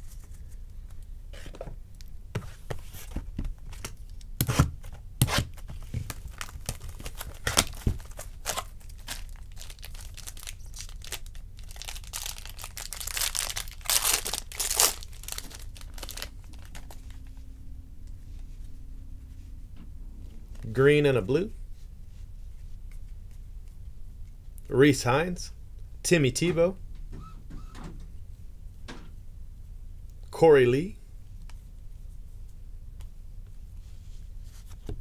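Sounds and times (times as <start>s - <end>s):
foil wrappers tearing and crinkling: 5.3s - 17.1s.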